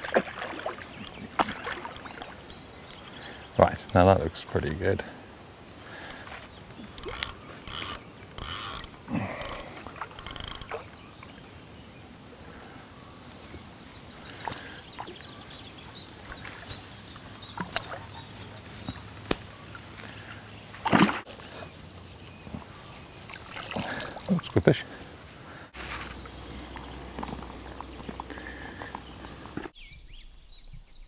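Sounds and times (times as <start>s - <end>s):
fishing reel ratcheting: 6.9s - 10.7s.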